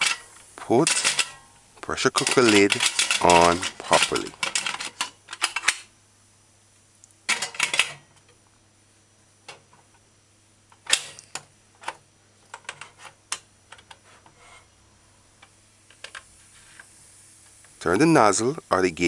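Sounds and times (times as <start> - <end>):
metal lid clattering on pot: 0.0 - 1.4.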